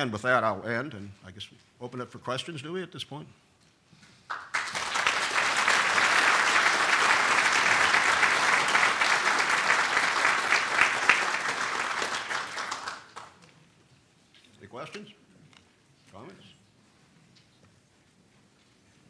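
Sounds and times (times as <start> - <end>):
audience applauding: 4.3 - 13.4.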